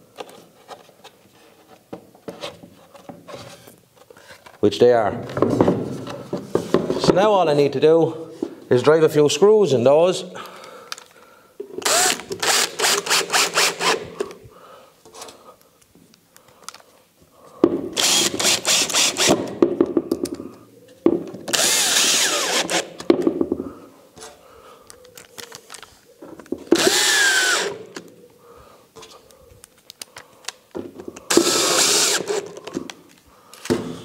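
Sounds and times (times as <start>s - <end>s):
drill driving screws into wood: 11.8s - 14.3s, 17.9s - 19.6s, 21.5s - 23.1s, 26.7s - 28.0s, 31.3s - 32.7s.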